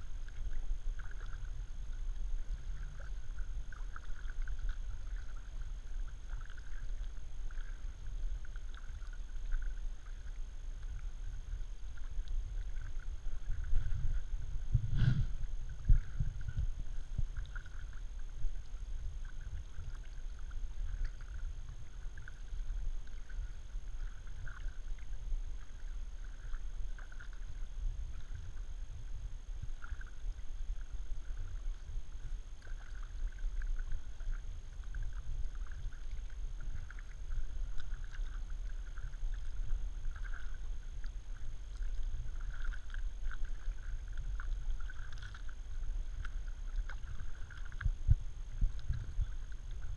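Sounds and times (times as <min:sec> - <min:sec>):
paddle blades dipping and dripping: 0:00.0 - 0:49.9
steady low rumble: 0:00.0 - 0:49.9.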